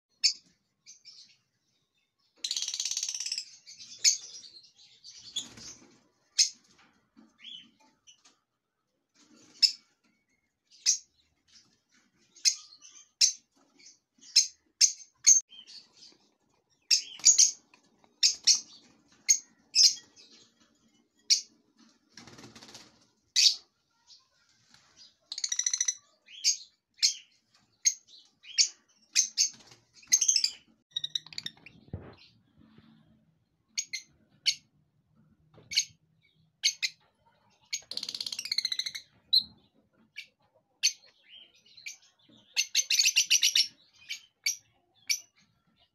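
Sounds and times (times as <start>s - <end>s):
bird chicks chirping: 0.1s - 8.5s, 9.2s - 45.9s.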